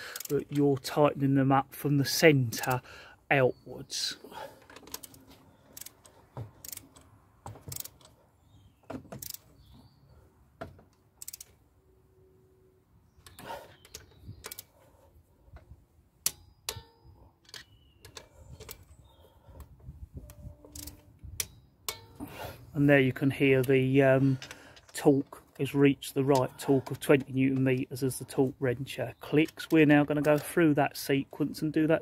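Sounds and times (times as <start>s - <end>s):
torque wrench clicking: 0.1s - 0.4s, 4.8s - 7.1s, 7.7s - 8.1s, 9.2s - 9.4s, 11.2s - 11.6s, 13.2s - 14.7s, 20.7s - 22.2s.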